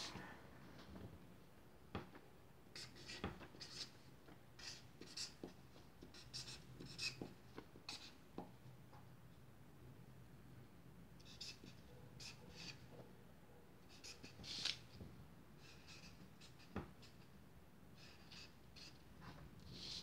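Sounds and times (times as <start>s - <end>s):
marker scratching on paper: 2.7s - 4.0s, 4.6s - 8.2s, 11.2s - 13.0s, 13.8s - 14.9s, 15.6s - 17.3s, 18.0s - 20.0s.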